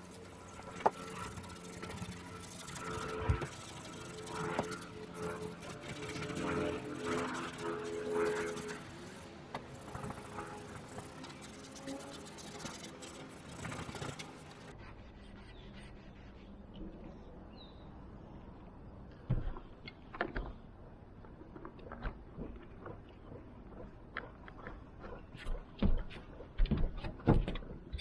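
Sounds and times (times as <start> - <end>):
low hum: 0.0 - 28.0.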